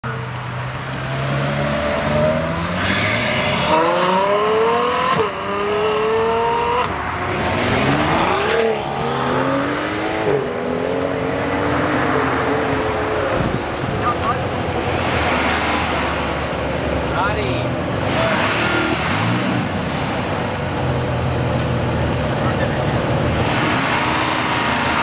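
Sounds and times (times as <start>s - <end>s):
sports car engine accelerating: 0.3s - 17.1s.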